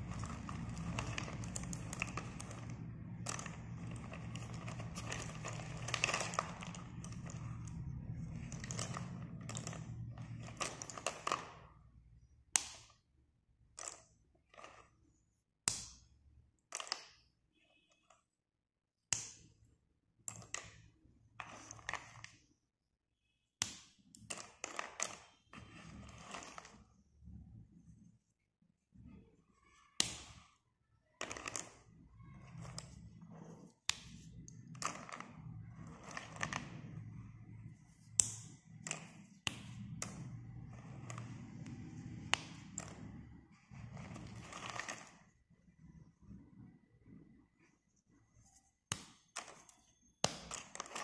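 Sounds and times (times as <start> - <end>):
pencil sticks clinking and rattling: 0.0 - 11.8, 13.7 - 15.1, 24.2 - 26.9, 31.2 - 45.4, 49.2 - 51.0.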